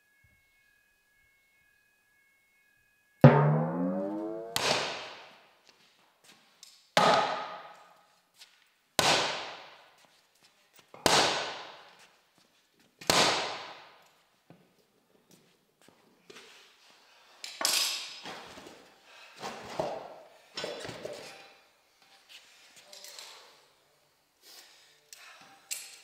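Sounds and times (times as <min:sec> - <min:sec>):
sledgehammer striking metal rim: 0:03.2 - 0:05.2.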